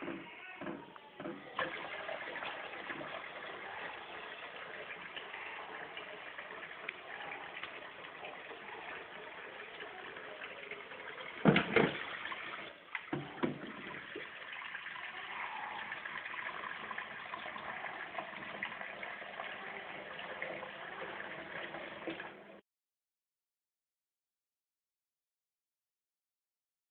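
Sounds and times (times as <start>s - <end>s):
tap water running into bowl: 1.2s - 22.6s
bowl knocking in sink: 11.4s - 12.0s.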